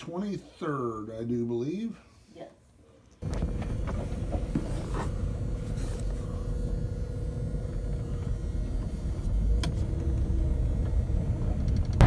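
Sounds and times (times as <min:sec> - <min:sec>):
thin steady hum: 0:00.0 - 0:12.0
truck engine rumbling: 0:03.2 - 0:12.0.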